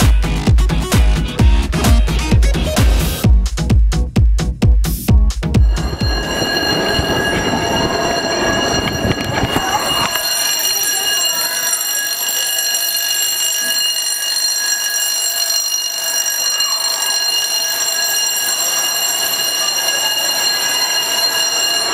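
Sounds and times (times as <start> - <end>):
electric alarm ringing: 5.6 - 21.9.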